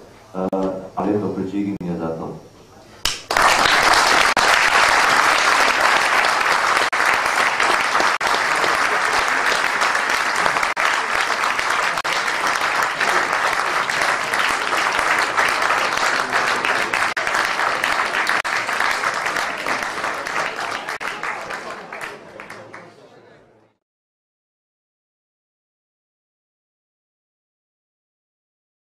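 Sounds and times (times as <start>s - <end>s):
audience applauding: 3.1s - 23.0s.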